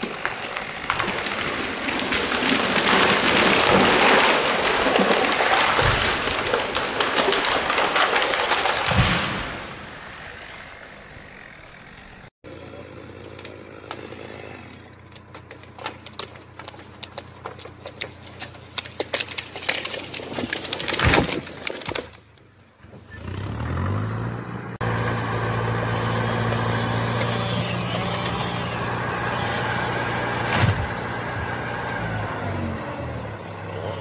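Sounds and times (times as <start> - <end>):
wood cracking and branches snapping: 0.0 - 10.2, 13.0 - 24.0, 24.8 - 34.0
falling tree crashing: 0.0 - 10.5, 13.3 - 22.6, 24.8 - 34.0
engine running: 9.7 - 20.2, 22.9 - 34.0.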